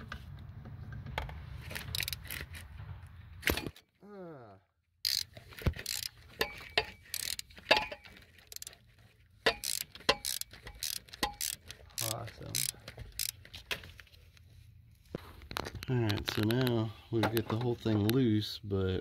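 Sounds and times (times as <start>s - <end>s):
socket ratchet clicking: 1.7s - 2.6s, 5.0s - 8.8s, 9.5s - 13.4s.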